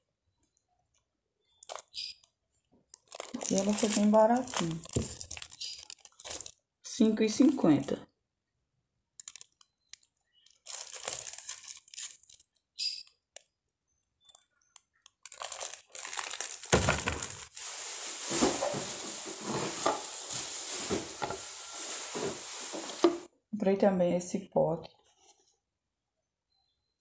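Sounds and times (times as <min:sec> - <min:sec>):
plastic crinkling: 0:01.5 - 0:02.1, 0:02.7 - 0:06.6, 0:09.1 - 0:12.7, 0:14.3 - 0:23.3
plastic wrap tearing: 0:01.6 - 0:01.9, 0:02.9 - 0:06.6, 0:09.2 - 0:12.6, 0:15.0 - 0:23.3.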